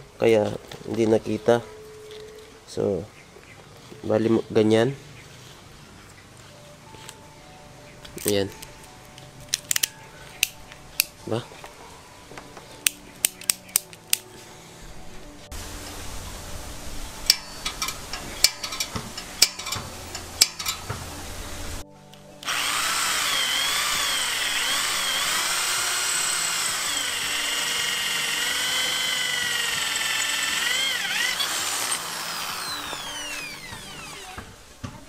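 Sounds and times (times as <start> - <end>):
electric drill whining: 22.4 - 34.6.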